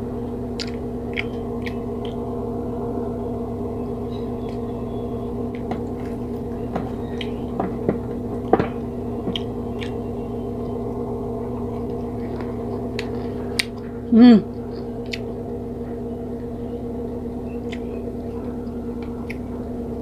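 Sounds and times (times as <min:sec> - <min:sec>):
steady tonal hum: 0:00.0 - 0:20.0
chewing: 0:00.6 - 0:02.2, 0:11.5 - 0:16.0, 0:17.5 - 0:19.6.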